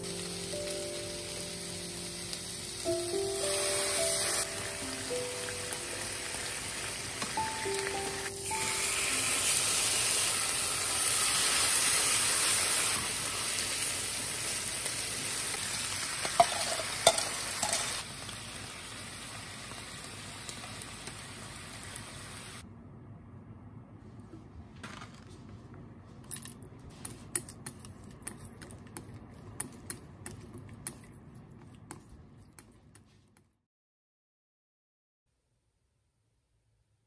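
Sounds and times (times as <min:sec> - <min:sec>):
meat and onions sizzling in pan: 0:00.0 - 0:22.6.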